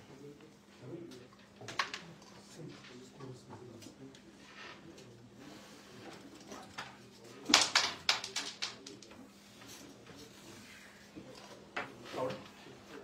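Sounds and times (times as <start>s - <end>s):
wooden carrom pieces clacking: 6.5s - 9.2s.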